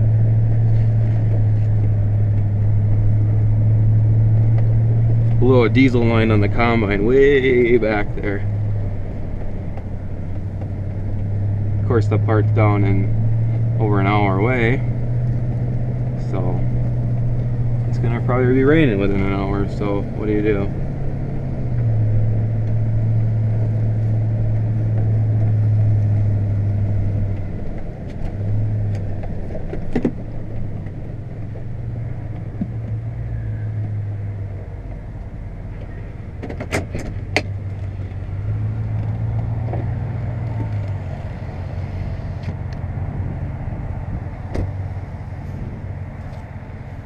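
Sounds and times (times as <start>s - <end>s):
truck engine drone: 0.0s - 47.0s.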